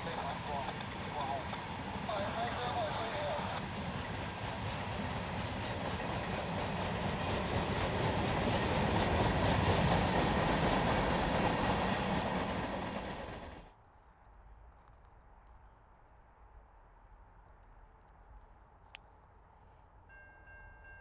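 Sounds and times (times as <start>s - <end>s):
freight train rumbling past: 0.0s - 13.7s.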